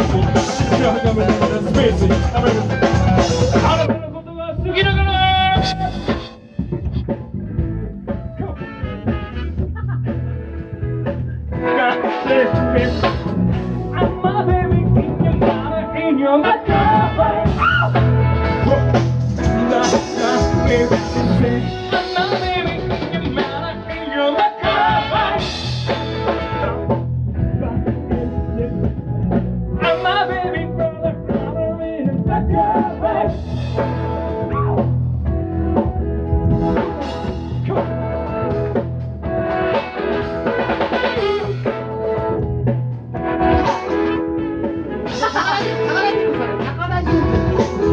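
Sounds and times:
man singing into a microphone: 0.0 - 6.2, 11.6 - 25.6, 27.5 - 29.0, 29.8 - 33.6
steady drum beat: 0.0 - 15.8, 16.7 - 24.0, 24.6 - 47.9
electric guitar: 0.0 - 47.9
keyboard: 0.0 - 47.9
horn section: 8.5 - 10.5, 15.4 - 22.9, 23.9 - 27.1, 36.5 - 42.6.

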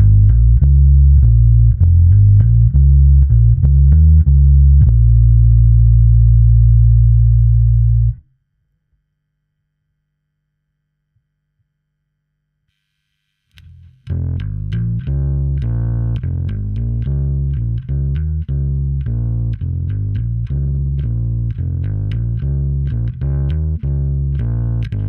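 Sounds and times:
electric bass guitar notes: 0.0 - 8.2, 13.6 - 25.0.

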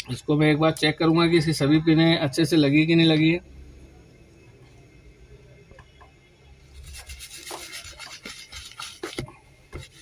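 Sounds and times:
scratchy rubbing and scraping: 6.7 - 10.0.

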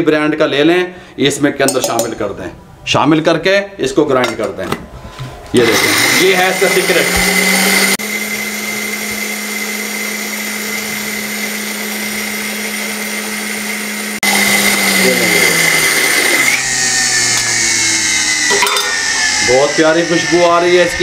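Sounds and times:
spice grinder motor whining: 5.6 - 21.0.

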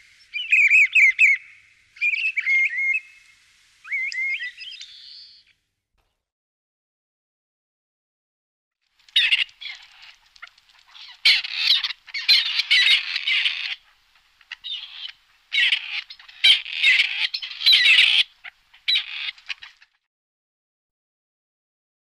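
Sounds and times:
partridge harsh scratchy calls: 9.2 - 19.8.

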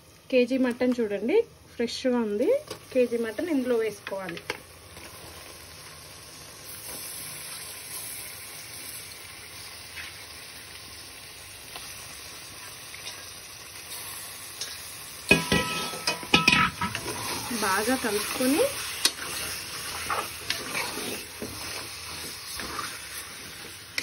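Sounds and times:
meat sizzling in oil: 4.6 - 24.0
metal spoon scraping a pot: 18.2 - 24.0.

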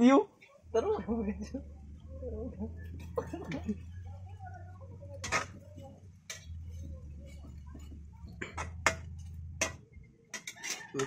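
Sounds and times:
metal spatula scraping frying pan: 5.2 - 11.0.

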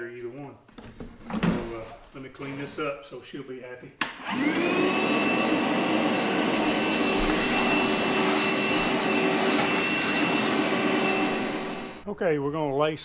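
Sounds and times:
vacuum whine: 4.2 - 12.1.

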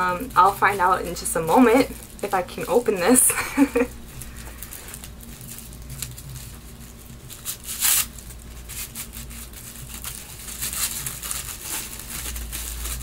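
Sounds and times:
wrapping crinkling: 0.0 - 13.0
wrapping ripping: 0.0 - 13.0.

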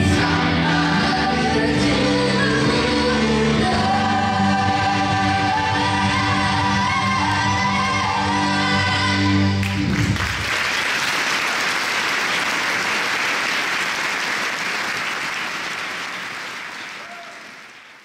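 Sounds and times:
choir singing with keyboard: 0.0 - 9.9
audience applauding: 9.6 - 18.0.

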